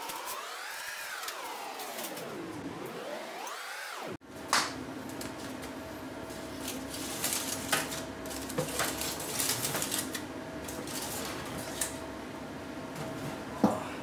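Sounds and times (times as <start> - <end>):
steady hum: 0.0 - 14.0
aluminium foil crinkling: 6.6 - 11.9.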